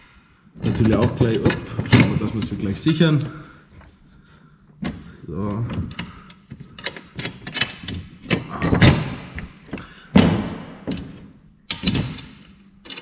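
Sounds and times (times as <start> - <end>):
metal clicks and knocks: 0.6 - 3.0, 4.8 - 13.0
heavy thuds: 8.6 - 11.2.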